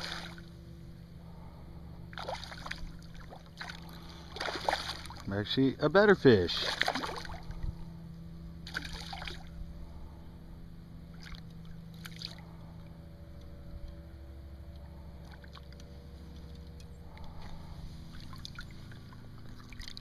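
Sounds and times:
fish splashing at water surface: 0.0 - 0.5, 2.1 - 5.3, 6.6 - 7.6, 8.6 - 9.5, 11.1 - 12.5, 17.2 - 20.0
steady low hum: 0.0 - 20.0.

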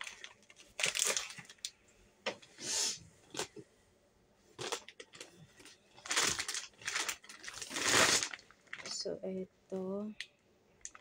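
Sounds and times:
plastic bag rustling: 0.0 - 1.7, 4.6 - 9.1.

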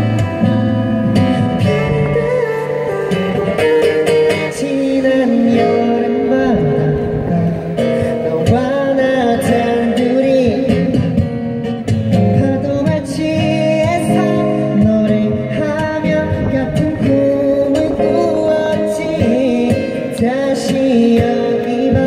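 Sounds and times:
acoustic guitars: 0.0 - 22.0
man singing: 1.2 - 22.0.

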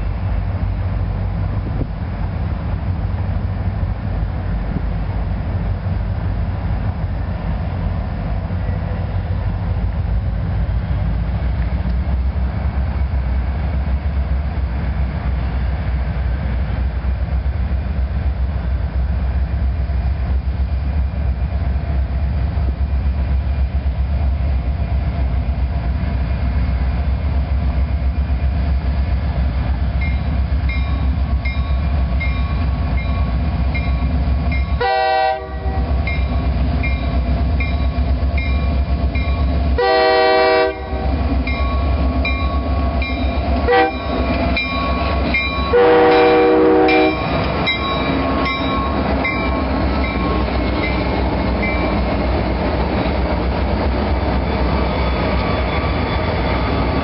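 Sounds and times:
train rumbling: 0.0 - 57.0.

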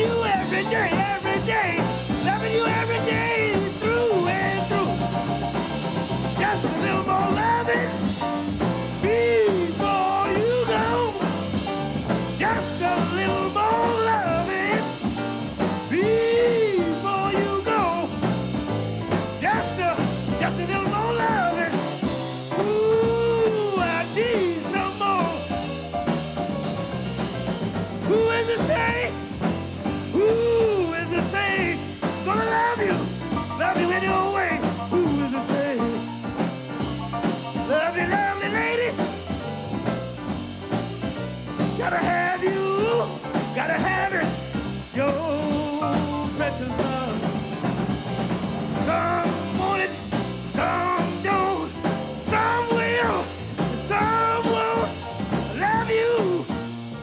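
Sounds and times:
man singing into a microphone: 0.0 - 5.1, 6.4 - 8.1, 9.0 - 11.3, 12.4 - 15.0, 15.9 - 18.2, 19.4 - 21.8, 22.6 - 25.5, 28.1 - 29.1, 30.1 - 36.0, 37.7 - 39.0, 41.8 - 47.3, 48.8 - 56.5
double bass: 0.0 - 57.0
drums with cymbal pattern: 0.0 - 57.0
piano: 0.0 - 57.0.

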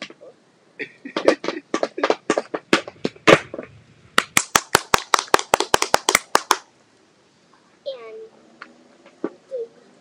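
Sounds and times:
tap shoes on wooden board: 1.2 - 3.7.

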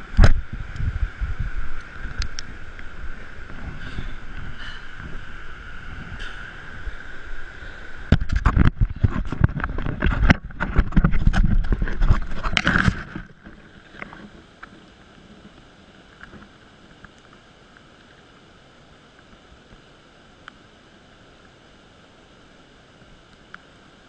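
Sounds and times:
faint steady hiss: 0.0 - 24.0
rushing water: 0.0 - 24.0
knocks and scrapes on camera: 8.1 - 14.3.

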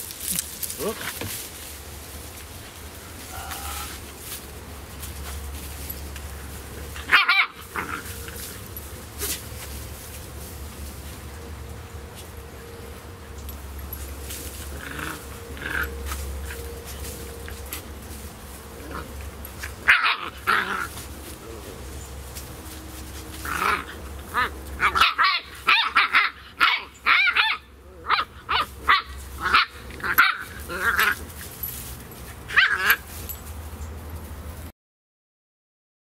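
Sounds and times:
puppies yipping and barking: 5.4 - 9.7, 13.0 - 21.3, 21.9 - 34.0
puppies growling: 6.0 - 9.4, 13.0 - 18.0, 18.6 - 33.1.

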